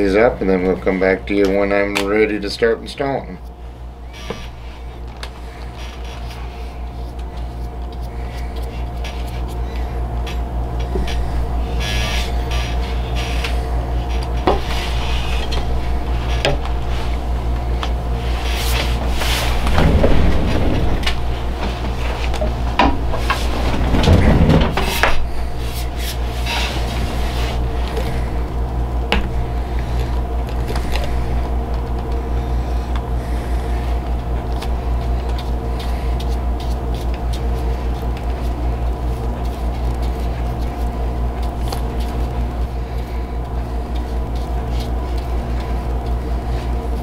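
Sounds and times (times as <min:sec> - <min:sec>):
low machine hum: 0:00.0 - 0:47.0
knocks and rustling: 0:18.7 - 0:25.3.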